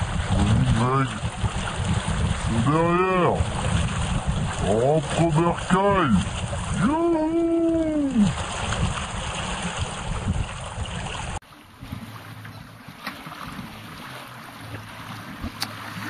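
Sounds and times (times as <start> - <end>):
wind on microphone: 0.0 - 12.1
water rushing past boat: 0.0 - 16.0.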